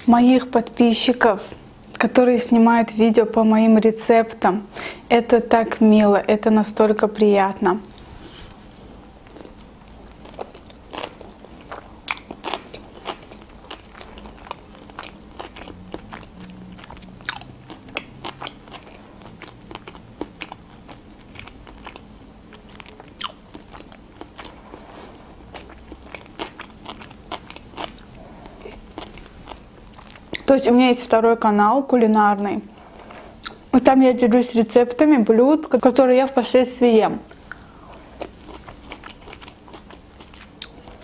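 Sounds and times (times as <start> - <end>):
chewing with crunches: 9.2 - 30.6, 32.8 - 33.6, 37.3 - 41.0
wet mouth clicks: 33.4 - 33.6.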